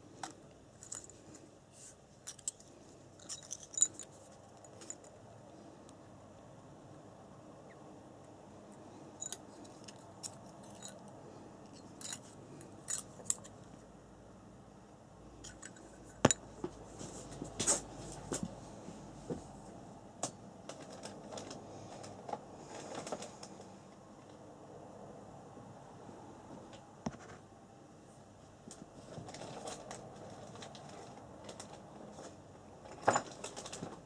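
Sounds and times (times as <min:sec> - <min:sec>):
small parts clicking and tapping: 0:00.2 - 0:01.5, 0:02.2 - 0:05.2, 0:09.2 - 0:13.7.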